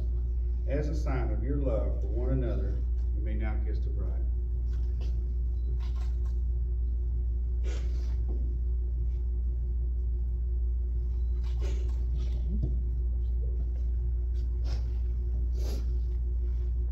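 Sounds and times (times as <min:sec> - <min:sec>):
faint constant hum: 0:00.0 - 0:16.9.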